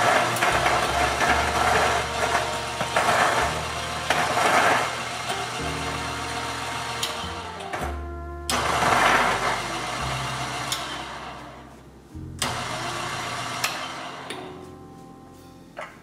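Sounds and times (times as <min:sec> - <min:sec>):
coffee grinder grinding beans: 0:00.0 - 0:07.8, 0:08.5 - 0:11.4, 0:12.4 - 0:14.4.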